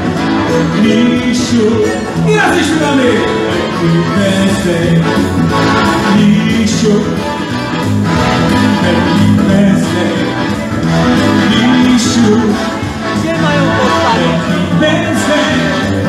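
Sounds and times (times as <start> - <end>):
repeating bass line: 0.0 - 16.0
loud dance music with singer: 8.2 - 16.0.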